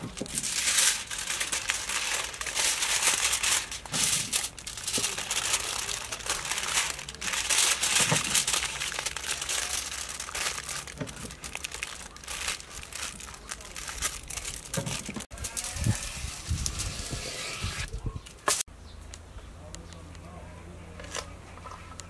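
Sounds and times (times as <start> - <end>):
aluminium foil crinkling: 0.0 - 17.1.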